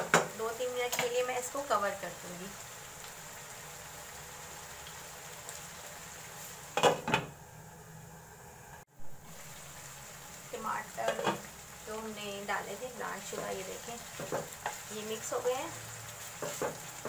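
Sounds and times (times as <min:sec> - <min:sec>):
curry sizzling in a wok: 0:00.0 - 0:17.0.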